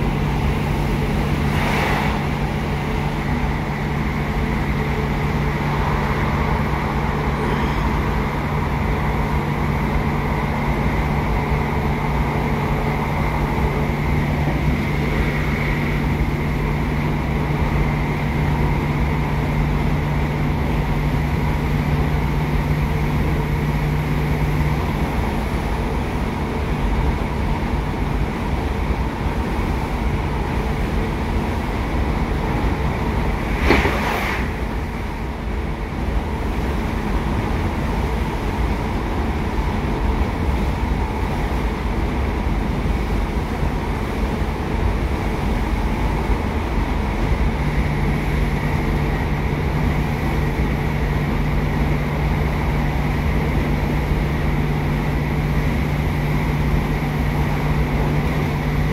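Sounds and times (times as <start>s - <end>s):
steady low hum: 0.0s - 58.9s
train running rumble: 0.0s - 58.9s
short sharp clatter: 33.4s - 34.6s.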